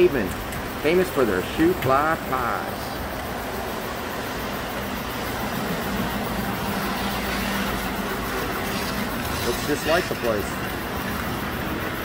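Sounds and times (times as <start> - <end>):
low hum: 2.7 - 12.0.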